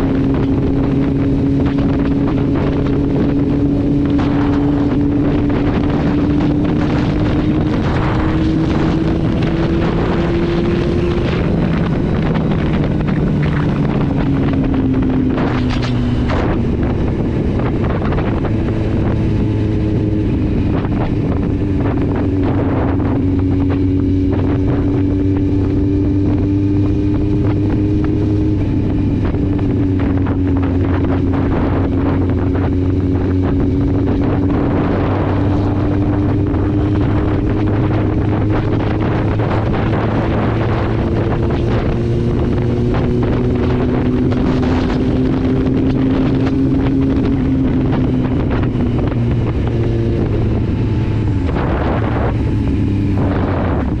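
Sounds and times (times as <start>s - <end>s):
motorcycle engine cruising: 0.0s - 54.0s
wind rushing over microphone: 0.0s - 54.0s.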